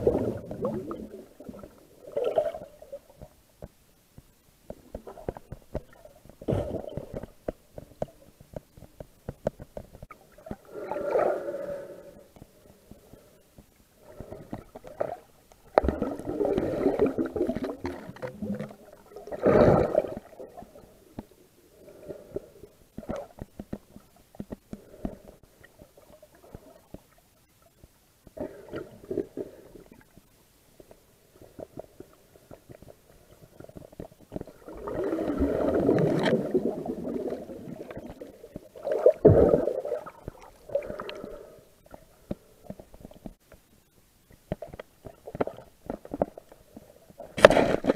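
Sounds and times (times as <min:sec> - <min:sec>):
muffled underwater rumbling: 0:00.0 - 0:03.4
faint clicking: 0:12.2 - 0:19.0.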